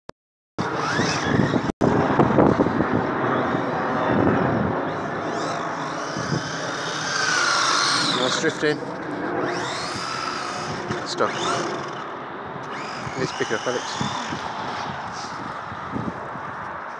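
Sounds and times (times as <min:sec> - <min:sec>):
electric motor whining: 0:00.6 - 0:01.7, 0:04.9 - 0:16.3
wheels rushing through snow: 0:00.6 - 0:01.7, 0:05.3 - 0:11.8, 0:12.6 - 0:16.9.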